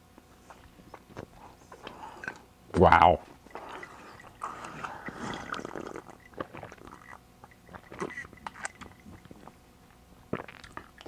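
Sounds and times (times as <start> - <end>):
person chewing: 0.4 - 2.4, 3.4 - 9.6, 10.3 - 11.0
person sipping from a mug: 0.5 - 2.4, 3.5 - 9.6.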